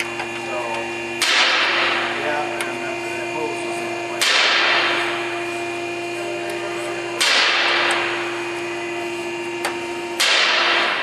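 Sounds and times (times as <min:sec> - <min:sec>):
steady hum: 0:00.0 - 0:11.0
sudden loud crack: 0:07.2 - 0:08.2, 0:10.2 - 0:11.0.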